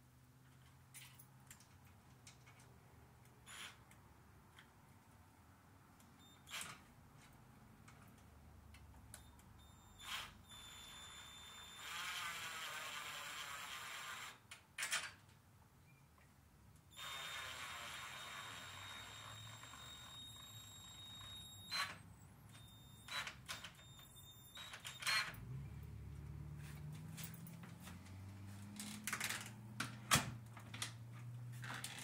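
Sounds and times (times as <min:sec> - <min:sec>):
cordless drill driving screws: 0:10.0 - 0:14.4, 0:17.0 - 0:22.0.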